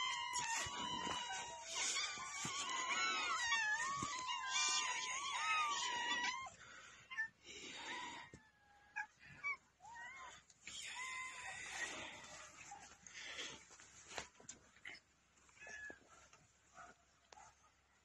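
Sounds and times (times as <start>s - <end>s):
many cats meowing: 0.0s - 6.6s.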